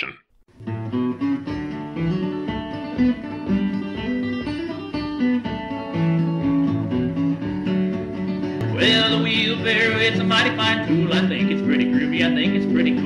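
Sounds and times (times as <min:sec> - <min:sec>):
acoustic guitar music: 0:00.0 - 0:13.0.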